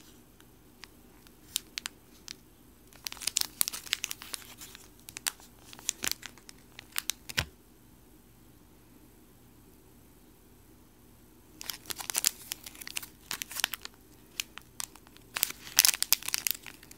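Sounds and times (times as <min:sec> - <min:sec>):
plastic bag crinkling: 0:00.8 - 0:07.5, 0:11.6 - 0:16.9.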